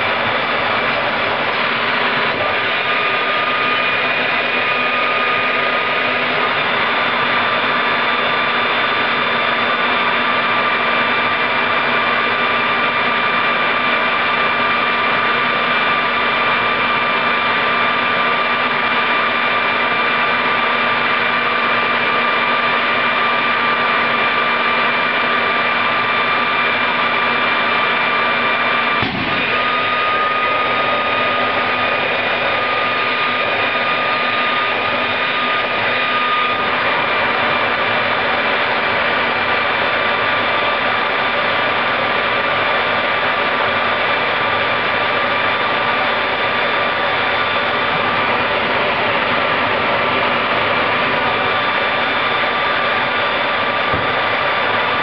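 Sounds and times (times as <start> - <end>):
turbojet engine whine: 0.0 - 55.0
brief pop: 29.0 - 29.4.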